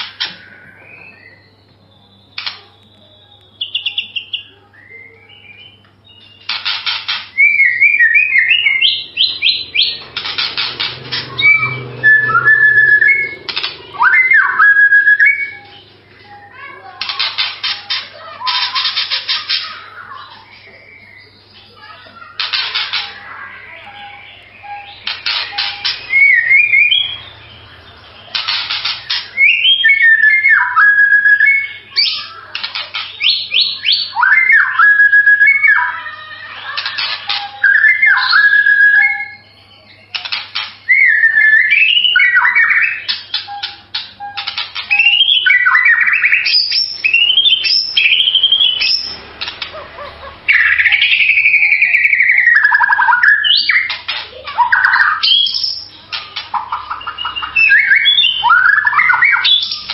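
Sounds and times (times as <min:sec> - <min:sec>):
bird singing whistled phrases: 0:00.2 - 0:17.0, 0:19.7 - 0:22.0, 0:22.9 - 0:40.1, 0:40.8 - 0:49.2, 0:50.5 - 0:54.0, 0:54.6 - 0:59.9
bird rattling trills: 0:06.2 - 0:20.4, 0:21.8 - 0:35.1, 0:40.1 - 0:59.9.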